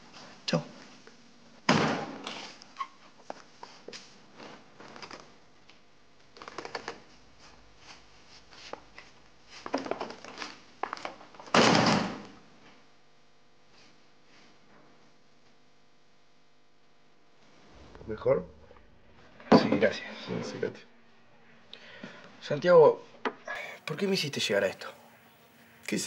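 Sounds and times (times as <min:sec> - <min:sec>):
footsteps: 0:17.4 - 0:21.6
loud bang: 0:17.5 - 0:21.7.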